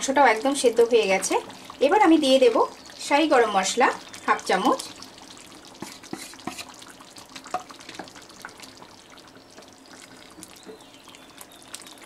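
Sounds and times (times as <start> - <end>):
curry simmering with bubbles popping: 0.0 - 12.0
wooden spatula stirring and scraping: 5.7 - 6.9.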